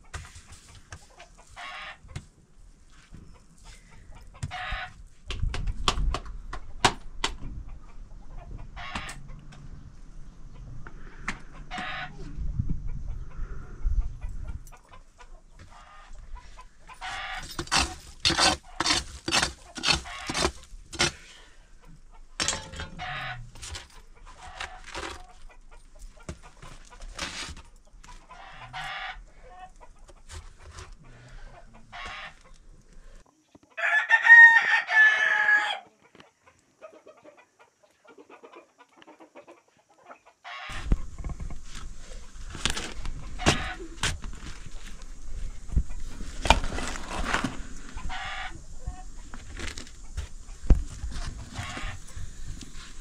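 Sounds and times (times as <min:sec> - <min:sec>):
chickens clucking: 0:06.6 - 0:33.7, 0:35.9 - 0:53.0
rooster crowing: 0:33.8 - 0:35.9.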